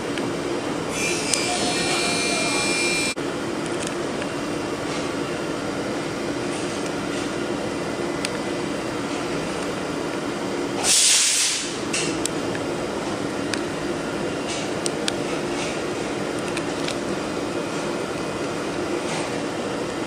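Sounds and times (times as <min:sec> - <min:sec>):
machinery humming: 0:00.0 - 0:20.0
short loud hiss: 0:10.8 - 0:11.7.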